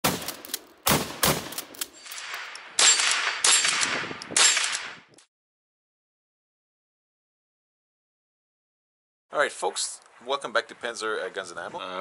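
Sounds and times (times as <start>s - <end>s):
gunshots: 0.0s - 5.1s.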